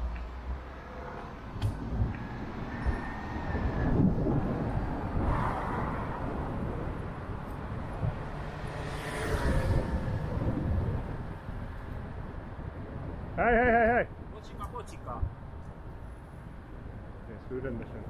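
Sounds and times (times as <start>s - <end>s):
city street traffic: 0.0s - 18.0s
wind buffeting microphone: 1.0s - 13.4s.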